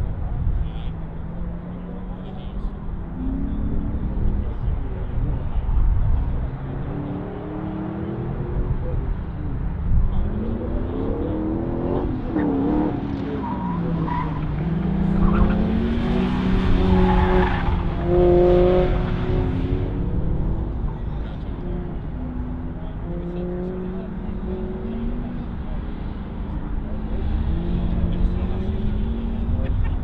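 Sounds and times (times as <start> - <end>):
sports car engine revving: 0.3 - 30.0
tires squealing: 10.4 - 21.2.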